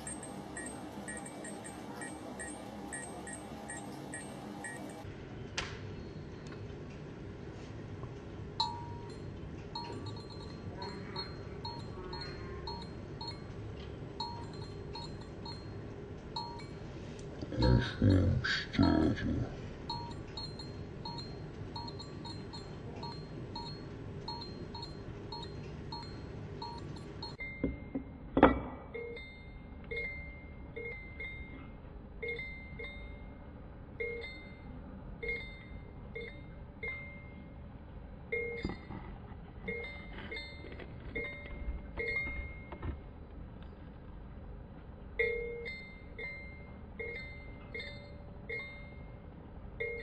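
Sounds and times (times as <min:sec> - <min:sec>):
fluorescent starter clinking: 0:00.0 - 0:05.1, 0:08.2 - 0:17.3, 0:19.8 - 0:31.6, 0:38.3 - 0:43.8.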